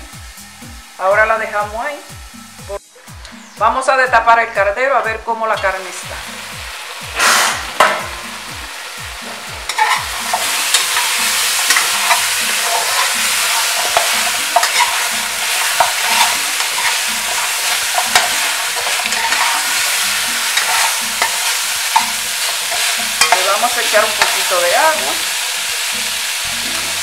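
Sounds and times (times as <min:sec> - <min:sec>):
meat sizzling in hot oil: 0:00.0 - 0:03.2, 0:05.6 - 0:27.0
pot lid clanking: 0:07.4 - 0:08.2, 0:09.3 - 0:24.4
spoon scraping and knocking pot: 0:09.3 - 0:24.6.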